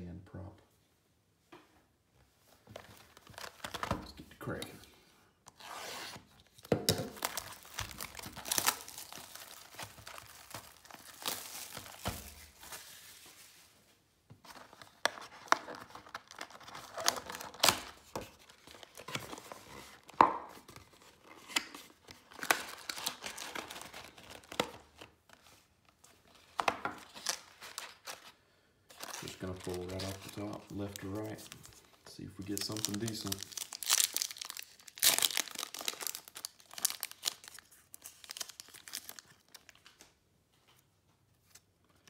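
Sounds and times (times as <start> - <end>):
cardboard tearing and crinkling: 5.6 - 13.1, 14.5 - 25.1, 28.9 - 31.8, 32.4 - 39.9.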